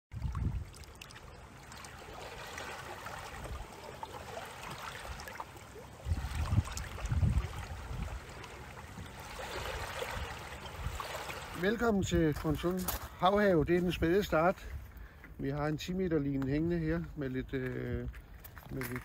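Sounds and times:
wind gusting on microphone: 0.1s - 0.8s, 6.0s - 14.9s
faint splashes: 0.1s - 13.2s
lapping and trickling water: 0.1s - 15.3s.

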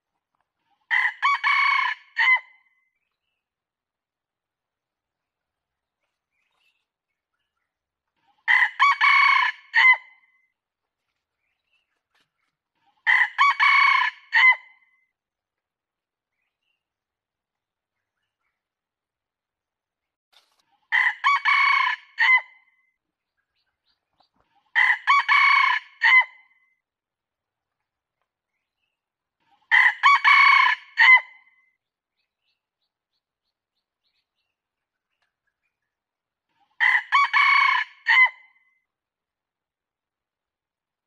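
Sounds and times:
rooster crowing: 8.5s - 10.0s, 13.1s - 14.6s, 21.0s - 22.4s, 29.7s - 31.3s, 36.8s - 38.4s.

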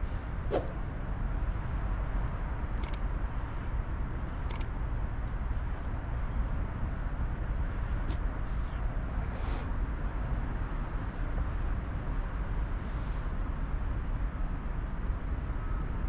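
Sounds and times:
sharp clicks: 2.7s - 3.0s, 4.2s - 6.1s.

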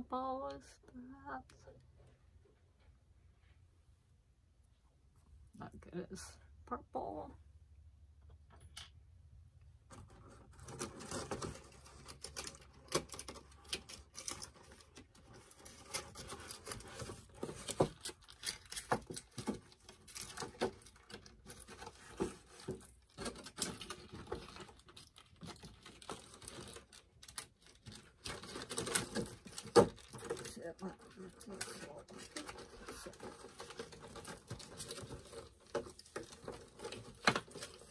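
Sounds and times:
plastic packaging tearing: 10.4s - 37.9s
plastic packaging crackling: 10.5s - 37.9s.

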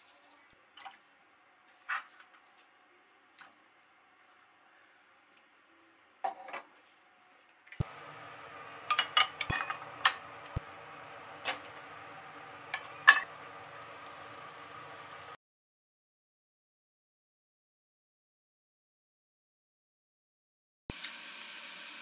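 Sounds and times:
steady background hum: 7.8s - 15.4s.

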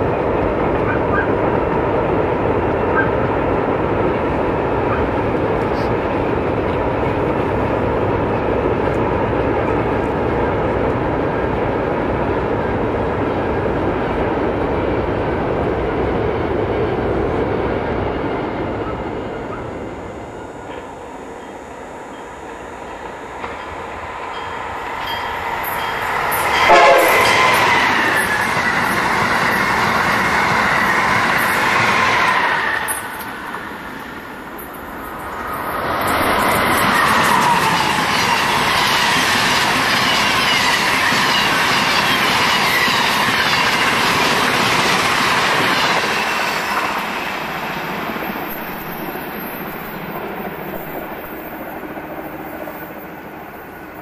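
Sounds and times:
train wheels rushing on rail: 0.0s - 54.0s
train horn blast: 26.6s - 28.2s.

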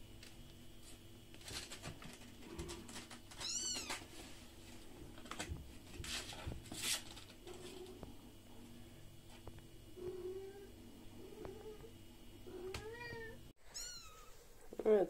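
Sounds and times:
scratching and rustling on cardboard: 0.8s - 7.9s.

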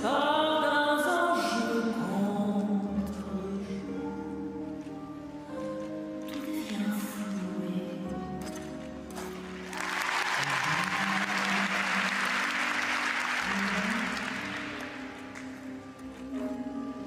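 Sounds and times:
audience applause: 9.6s - 15.6s.

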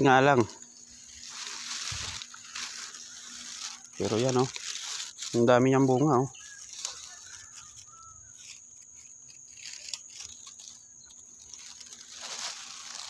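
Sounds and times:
high-pitched insect drone: 0.0s - 13.0s
rustling of dry grass: 0.0s - 13.0s
faint bird chirps: 2.6s - 12.4s.

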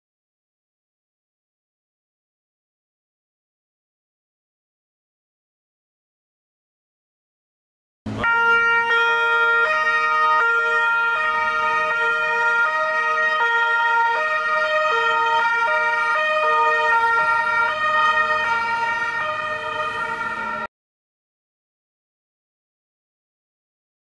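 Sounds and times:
two-tone emergency siren: 8.1s - 20.7s.

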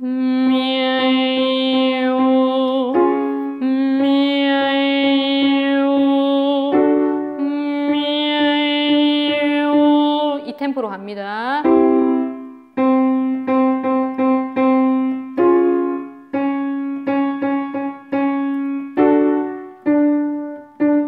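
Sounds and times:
piano playing repeated chords: 0.0s - 10.6s, 11.6s - 21.0s
woman singing held notes: 0.0s - 11.7s.

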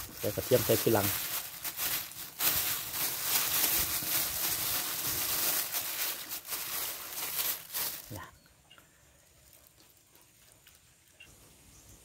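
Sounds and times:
plastic bag crinkling: 0.0s - 8.2s.

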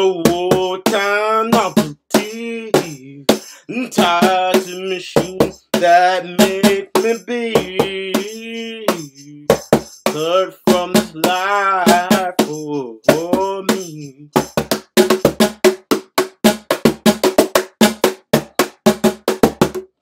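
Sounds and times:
hand strikes on cajon: 0.0s - 3.4s, 4.0s - 19.9s
man singing long notes: 0.0s - 14.5s.

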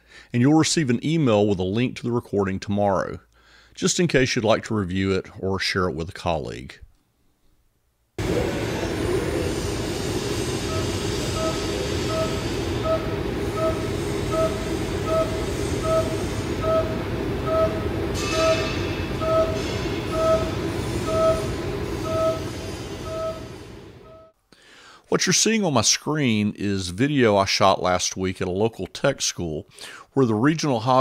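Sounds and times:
cnc mill cutting steel: 8.2s - 24.0s.

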